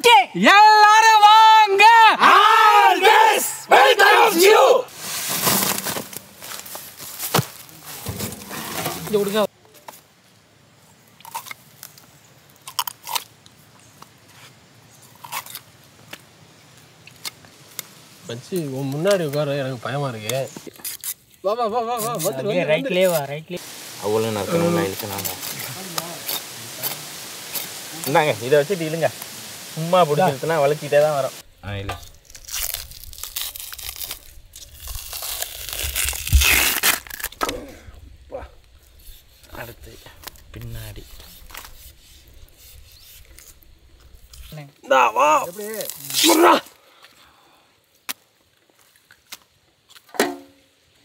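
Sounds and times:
shark skin tearing: 0:32.1 - 0:37.4.

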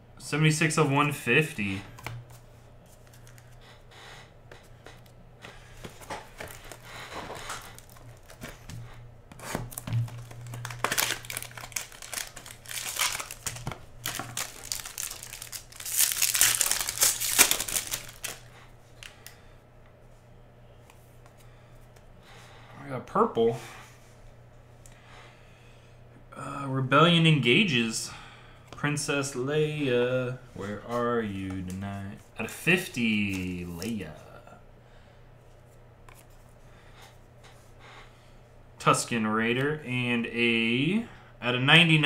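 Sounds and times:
foil wrapper crinkling: 0:06.0 - 0:08.8, 0:09.4 - 0:19.2.

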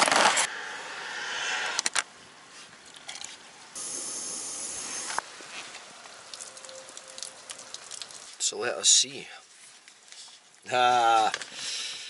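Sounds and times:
gas stove hissing: 0:03.8 - 0:05.2.

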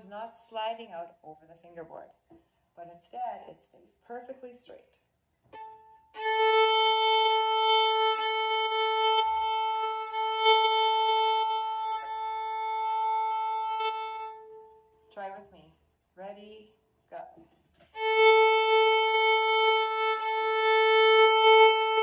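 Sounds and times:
violin bowing a long note: 0:05.5 - 0:15.0, 0:17.9 - 0:22.0.

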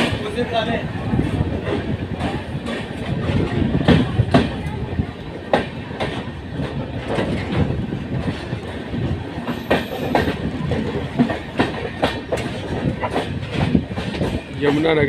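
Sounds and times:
train rumbling: 0:00.0 - 0:15.0
wheels clicking over rail joints: 0:05.5 - 0:15.0.

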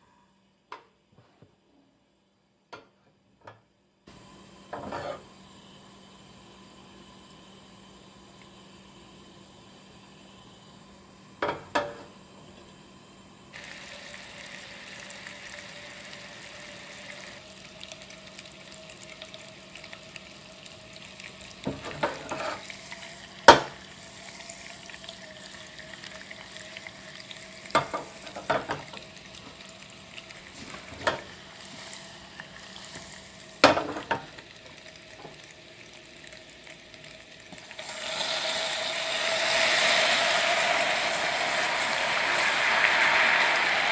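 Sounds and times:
syrup bubbling and sizzling: 0:13.5 - 0:43.9.

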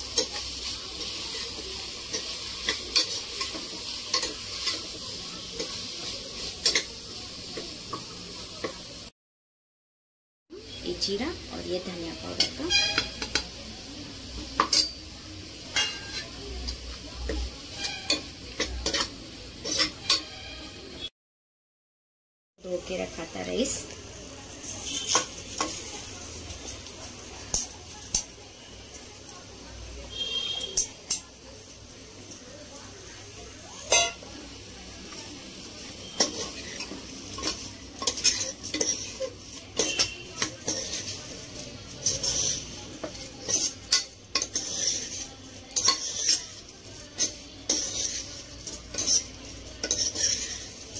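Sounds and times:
steel spoon scraping: 0:00.0 - 0:06.9, 0:12.2 - 0:13.4, 0:15.7 - 0:16.3, 0:17.7 - 0:20.8, 0:24.7 - 0:25.8, 0:33.8 - 0:34.2, 0:35.8 - 0:50.9
vegetables sizzling: 0:00.0 - 0:09.1, 0:10.5 - 0:21.1, 0:22.6 - 0:50.9.

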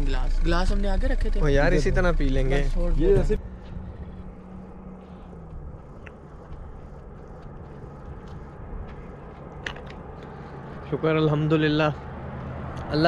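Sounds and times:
car cabin rumble: 0:00.0 - 0:08.9.

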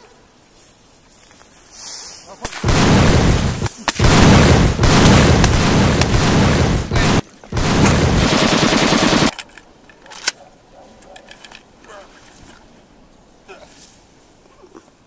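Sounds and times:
heavy gunfire and blasts: 0:02.5 - 0:09.3.

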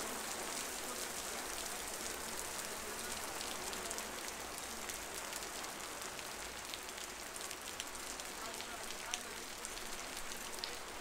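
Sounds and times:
raindrops pattering on pavement: 0:00.0 - 0:11.0.

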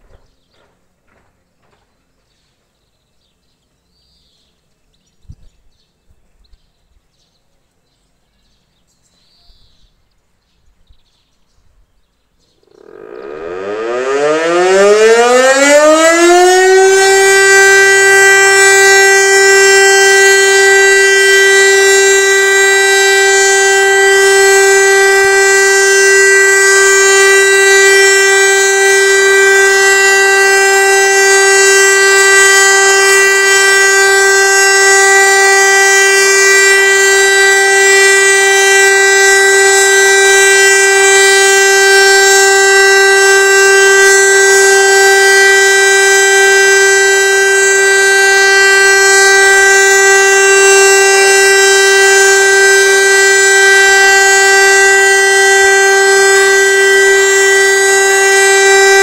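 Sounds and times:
motor siren steady tone: 0:12.6 - 0:59.0.

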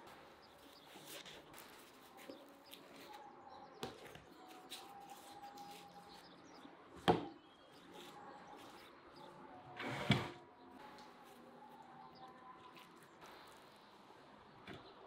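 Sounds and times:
bread crust crackling: 0:00.0 - 0:06.7.

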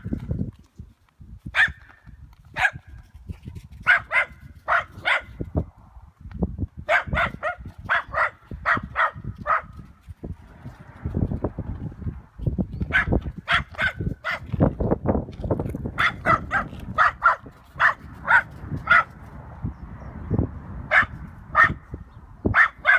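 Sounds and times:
small dog barking: 0:01.6 - 0:01.8, 0:02.6 - 0:02.9, 0:03.8 - 0:05.4, 0:06.9 - 0:09.7, 0:12.9 - 0:14.5, 0:16.0 - 0:19.2, 0:20.9 - 0:21.8, 0:22.5 - 0:22.9.

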